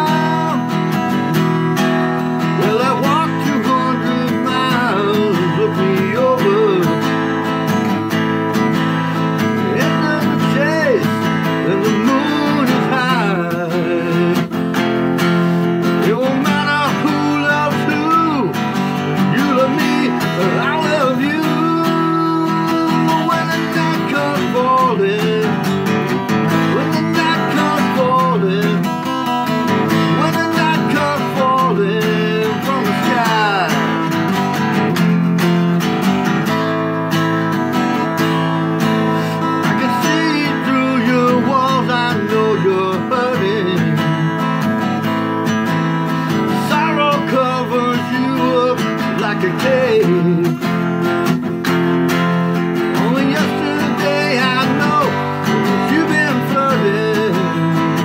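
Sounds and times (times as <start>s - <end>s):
acoustic guitar strumming: 0.0s - 58.0s.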